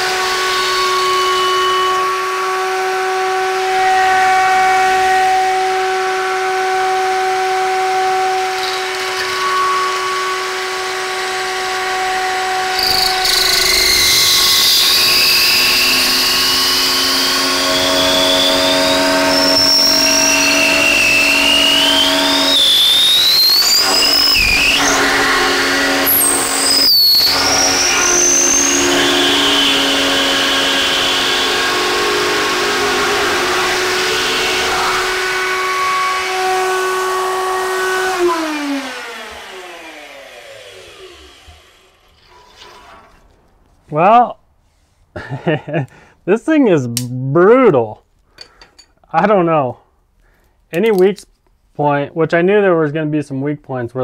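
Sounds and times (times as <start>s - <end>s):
router motor running: 0.0s - 42.2s
router bit cutting wood whine: 0.0s - 43.2s.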